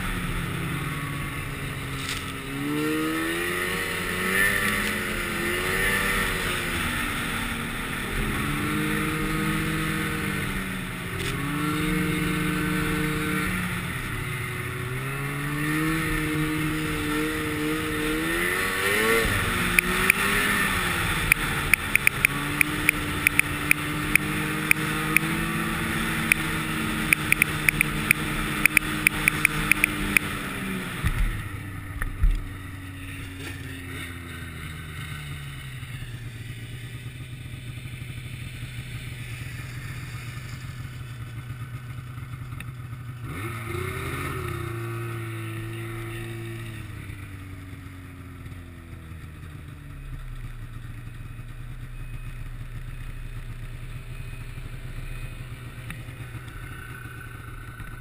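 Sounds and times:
snowmobile engine: 0.0s - 58.0s
rapid rattle of sharp ticks: 21.3s - 25.3s, 27.1s - 30.3s.

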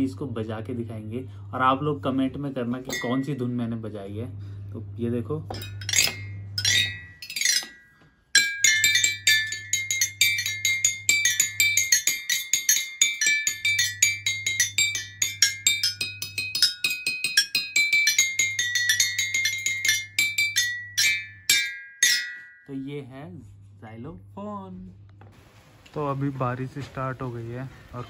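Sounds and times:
toy xylophone tune: 8.4s - 22.7s.

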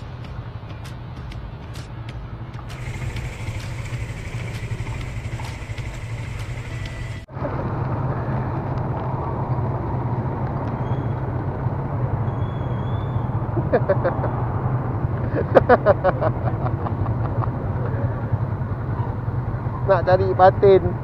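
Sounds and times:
small motorcycle engine running: 2.7s - 9.1s.

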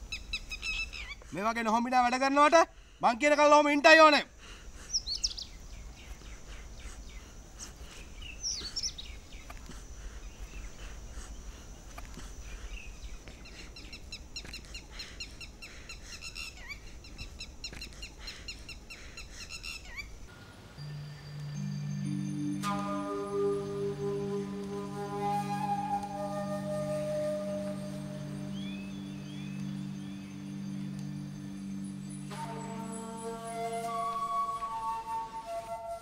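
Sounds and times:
small birds chirping: 0.0s - 22.6s, 23.4s - 34.2s
soft sustained music tones: 20.1s - 36.0s.

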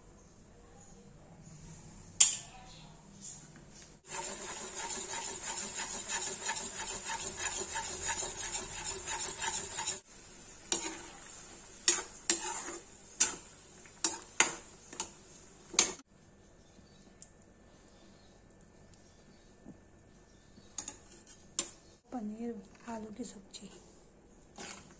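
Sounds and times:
spoon scraping pan: 4.1s - 16.0s, 20.7s - 22.0s, 24.5s - 24.9s
spoon clanking against pan: 10.7s - 11.1s.

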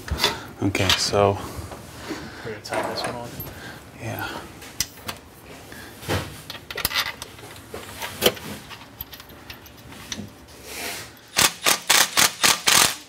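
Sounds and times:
metal parts knocking and clinking: 6.5s - 10.3s.

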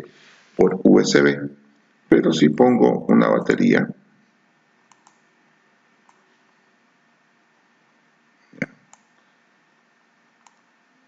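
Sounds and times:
faint room hiss: 0.0s - 11.0s
computer mouse clicks: 4.9s - 5.2s, 6.1s - 6.3s, 8.6s - 9.2s, 10.4s - 10.7s.

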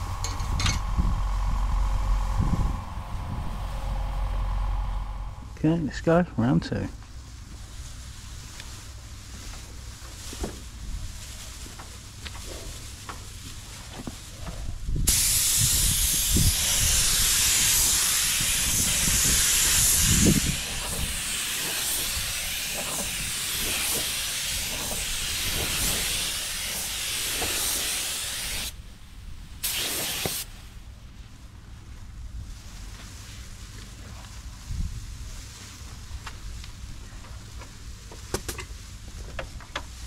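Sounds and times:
paint spray gun hissing: 0.0s - 5.7s, 15.1s - 28.8s, 29.6s - 30.5s.

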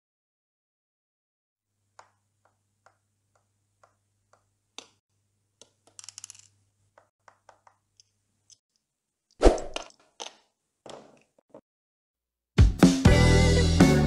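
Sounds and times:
small objects clicking on desk: 1.9s - 5.0s, 5.6s - 8.9s.

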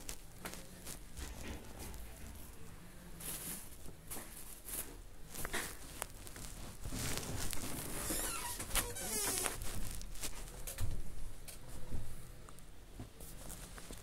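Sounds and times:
plastic bag rustling: 0.0s - 11.2s.

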